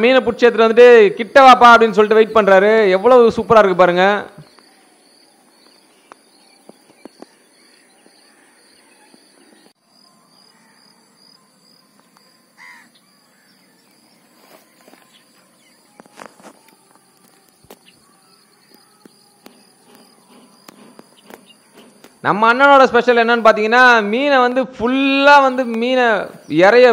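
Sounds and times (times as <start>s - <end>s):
birds calling: 1.2s - 9.8s, 10.4s - 24.3s
high insect drone: 4.4s - 22.8s
crow cawing: 7.2s - 9.5s, 10.4s - 11.0s, 12.6s - 13.7s.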